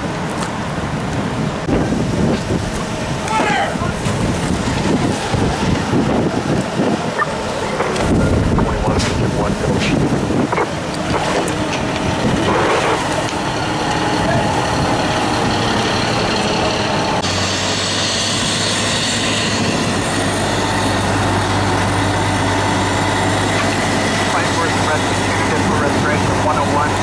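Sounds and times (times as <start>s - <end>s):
diesel engine droning: 0.0s - 27.0s
rushing noise: 0.0s - 27.0s
strong low hum: 0.8s - 27.0s.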